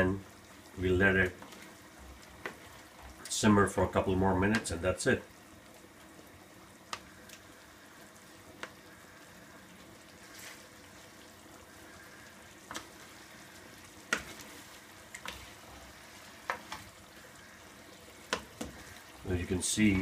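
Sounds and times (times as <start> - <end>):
sauce sizzling in a pan: 0.0 - 20.0.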